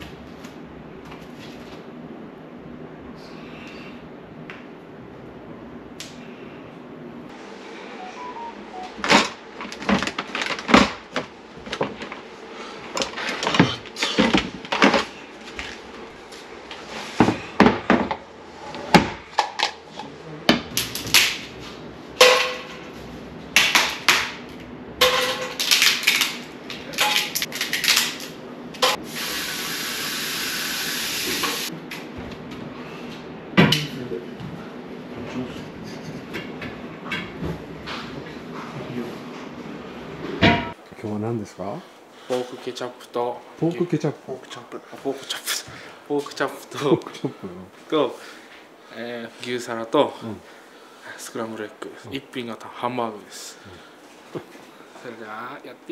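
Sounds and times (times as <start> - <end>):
steady hiss: 28.8 - 31.7.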